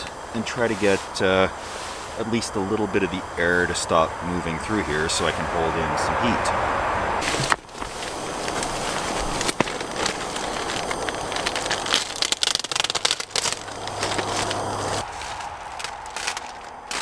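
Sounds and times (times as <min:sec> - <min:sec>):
plastic tarp crinkling: 0:07.2 - 0:17.0.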